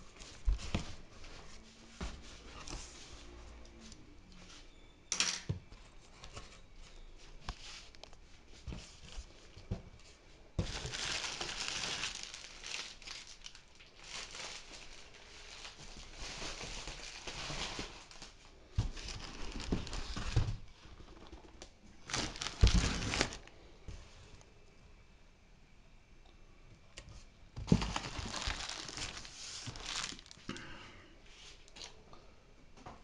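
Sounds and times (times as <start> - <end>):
bubble wrap crinkling: 10.6 - 23.6, 27.6 - 30.6.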